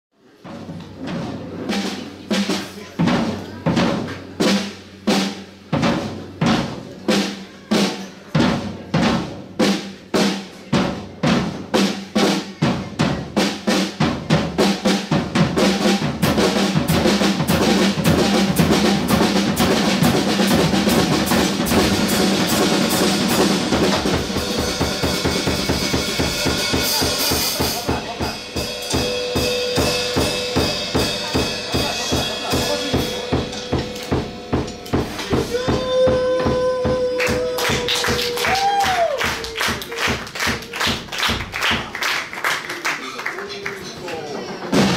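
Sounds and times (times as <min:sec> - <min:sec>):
drum kit playing: 0:00.2 - 0:42.8, 0:44.4 - 0:44.9
cymbal wash: 0:28.0 - 0:35.6.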